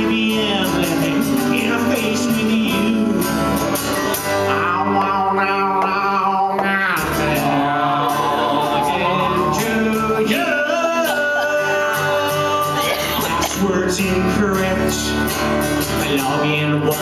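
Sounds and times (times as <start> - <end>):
acoustic guitar: 0.0 - 17.0
men singing long notes: 4.5 - 15.1.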